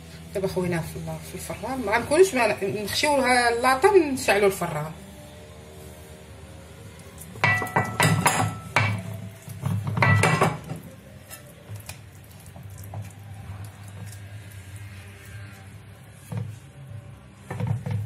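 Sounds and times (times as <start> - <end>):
metal pan clattering and ringing: 7.4 - 9.1, 9.9 - 10.6.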